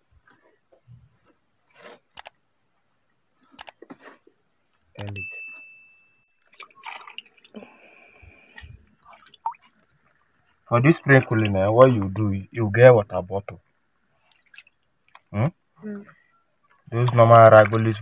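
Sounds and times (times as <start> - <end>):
hands scraping soil: 1.6 - 2.2
short chime: 5.1 - 6.3
stirred water: 6.4 - 15.7, 16.6 - 18.0.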